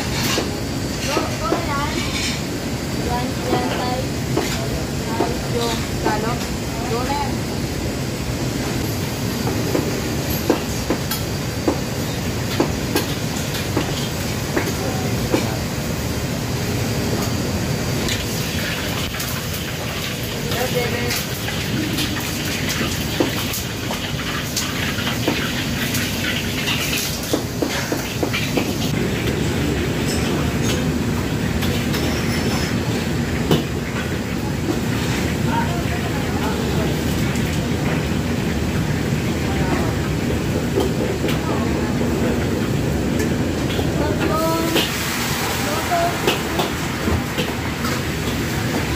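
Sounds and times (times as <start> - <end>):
wok range and extractor rumble: 0.0 - 48.9
metal utensils clanking on wok: 31.6 - 33.0.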